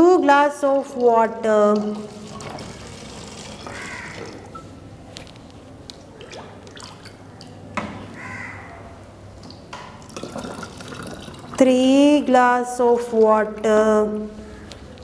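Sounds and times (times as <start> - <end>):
water pouring into plastic bottle: 2.0 - 4.4, 10.0 - 11.6.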